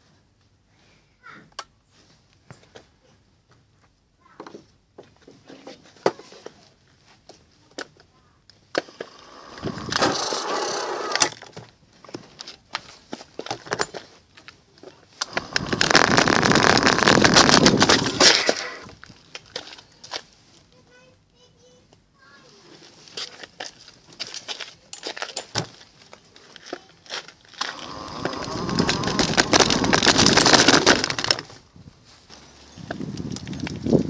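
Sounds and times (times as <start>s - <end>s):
scooter frame rattling: 8.8s - 11.5s, 15.2s - 18.9s, 27.5s - 31.6s
wheels rolling over gravel: 8.8s - 20.3s, 23.0s - 34.0s.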